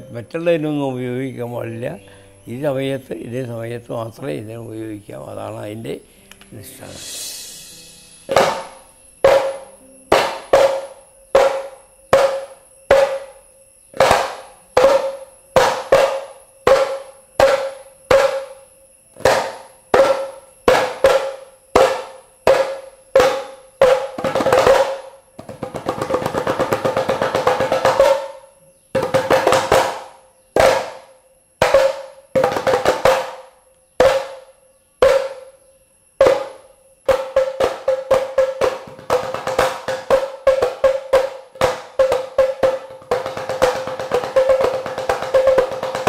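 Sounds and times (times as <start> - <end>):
pot drums struck by hand: 7.7 - 13.4, 14.0 - 18.6, 19.2 - 35.6, 36.2 - 46.0.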